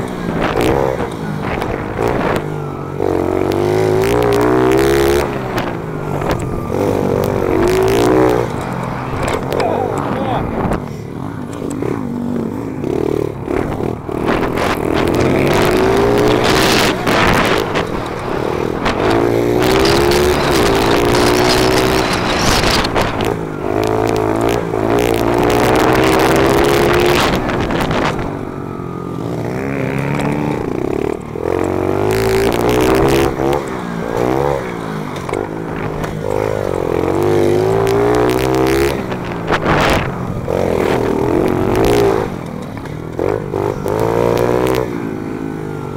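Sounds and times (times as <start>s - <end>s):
wind buffeting on camera: 0.0s - 28.6s, 29.2s - 44.9s
pit bike engine revving: 0.0s - 45.9s
helmet camera rattle: 13.6s - 24.0s.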